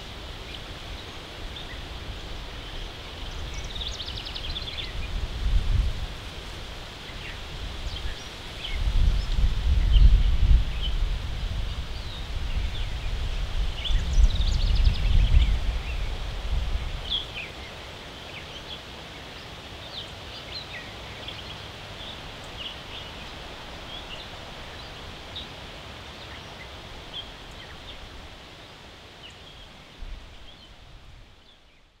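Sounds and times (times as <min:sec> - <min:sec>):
outdoor hiss: 0:00.0 - 0:32.0
songbirds chirping: 0:00.0 - 0:32.0
wind gusts rumbling: 0:04.5 - 0:17.4.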